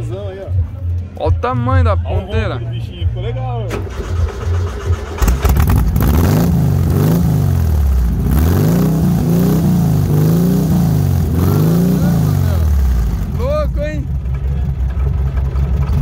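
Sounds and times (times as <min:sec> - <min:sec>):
engine revving through open exhaust: 0:05.1 - 0:16.0.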